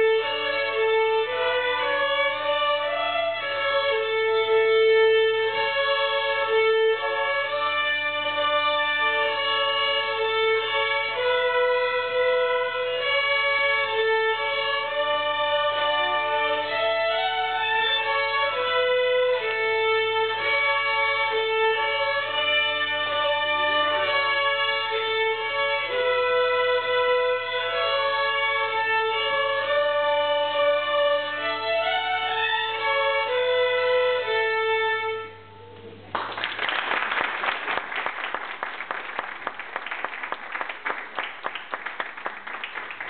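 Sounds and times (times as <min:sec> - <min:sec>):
violin ensemble playing: 0:00.0 - 0:36.0
audience applauding: 0:36.1 - 0:43.0.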